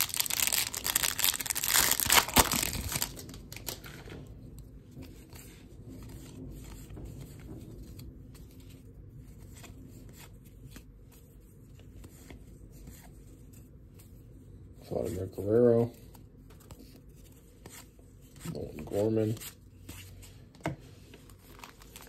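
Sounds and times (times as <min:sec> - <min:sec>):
plastic wrapper crinkling and tearing: 0:00.0 - 0:04.1, 0:21.4 - 0:22.0.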